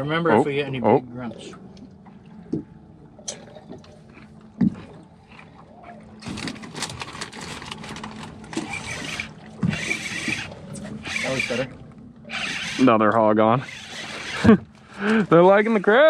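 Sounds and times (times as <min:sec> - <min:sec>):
spinning reel whirring: 0:08.5 - 0:16.0.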